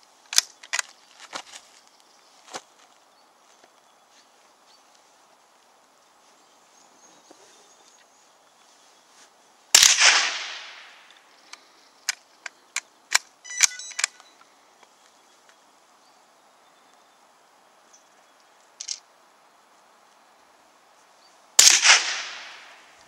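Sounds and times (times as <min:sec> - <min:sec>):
rifle shot echoing: 0:09.8 - 0:11.0, 0:21.6 - 0:22.8.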